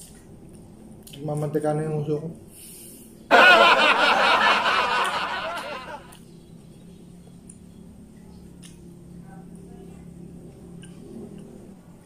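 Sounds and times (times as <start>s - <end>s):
laughter: 3.3s - 6.2s.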